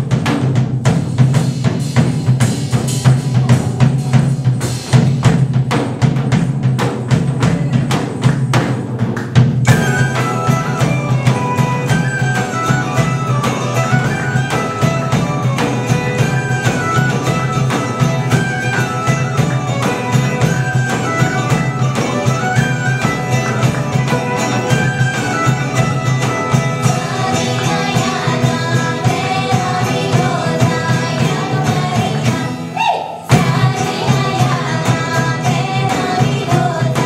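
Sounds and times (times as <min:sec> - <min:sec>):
loud drum hit: 0:00.0 - 0:11.6, 0:25.8 - 0:37.0
live folk band playing: 0:00.0 - 0:37.0
person singing: 0:26.7 - 0:37.0.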